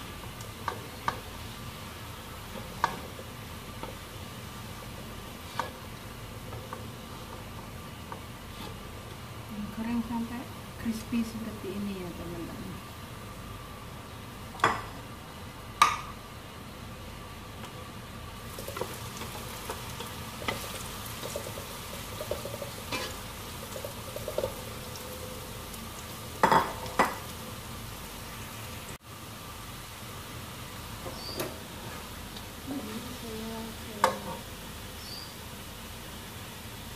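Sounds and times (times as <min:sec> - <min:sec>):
food sizzling in oil: 0:00.0 - 0:15.0, 0:18.0 - 0:36.9
metal spatula scraping wok: 0:22.9 - 0:23.2.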